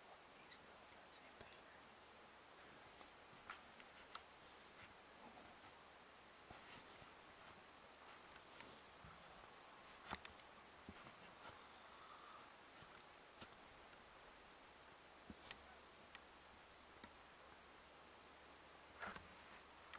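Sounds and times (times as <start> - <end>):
insects chirping: 0.4 - 3.1, 7.4 - 19.9
soft clicks: 9.5 - 11.2, 15.3 - 16.3, 16.9 - 17.2.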